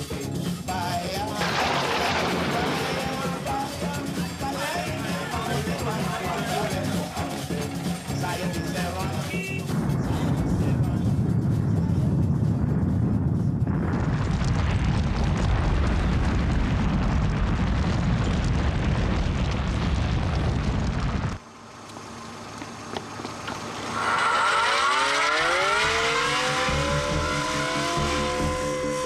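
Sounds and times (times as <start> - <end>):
loud low rumble: 1.3 - 21.4
music with gliding tones: 24.0 - 29.0.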